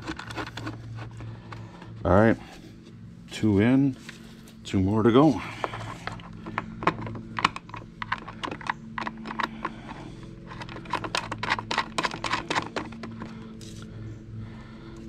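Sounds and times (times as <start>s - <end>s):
low steady hum: 0.0s - 15.0s
metal bolts clicking on plastic: 6.0s - 9.9s, 10.5s - 13.3s.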